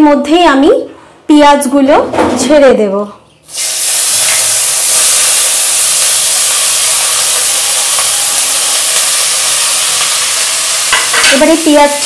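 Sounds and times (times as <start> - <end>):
onions sizzling in hot oil: 3.5 - 12.0.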